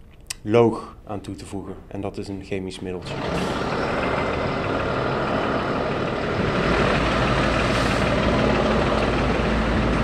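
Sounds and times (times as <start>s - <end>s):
truck engine and pump noise: 2.8s - 10.0s.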